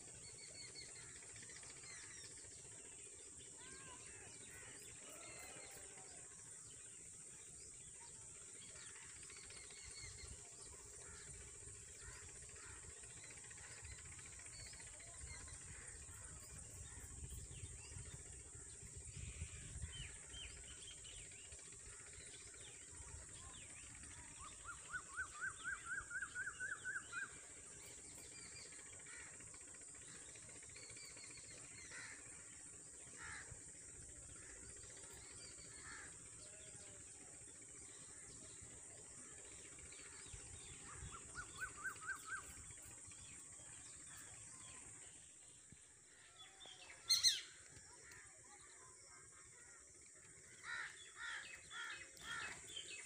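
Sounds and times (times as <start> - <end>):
bird chirps: 40.1 - 44.8, 45.8 - 49.0.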